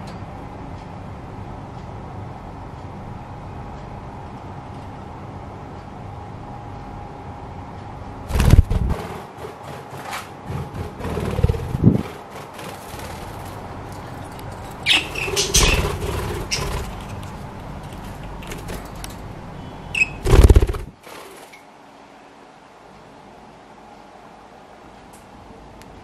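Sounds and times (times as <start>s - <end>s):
budgerigar wings fluttering: 8.3s - 19.0s, 20.0s - 21.6s
bird chirps: 14.8s - 17.0s, 19.6s - 20.8s.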